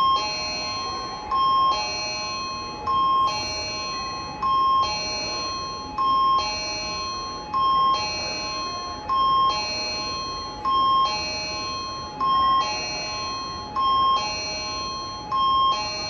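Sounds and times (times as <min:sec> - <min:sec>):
two-tone electronic chime: 0:00.0 - 0:16.0.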